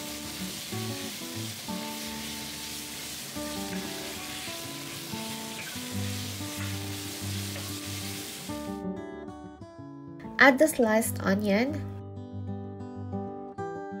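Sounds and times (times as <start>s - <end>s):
meat sizzling in oil: 0.0s - 8.8s.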